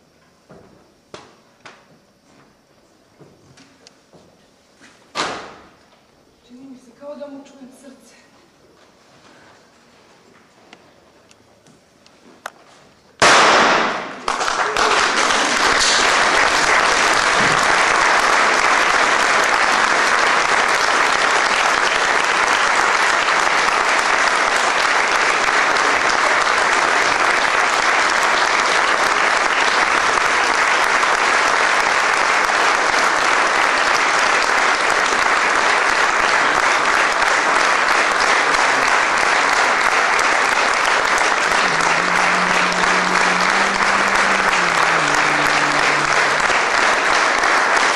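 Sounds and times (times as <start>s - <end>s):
audience applauding: 13.3s - 47.9s.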